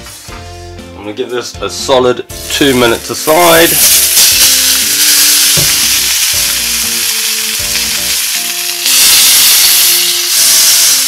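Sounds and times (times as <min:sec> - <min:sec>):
steak sizzling in a pan: 0:03.2 - 0:11.0.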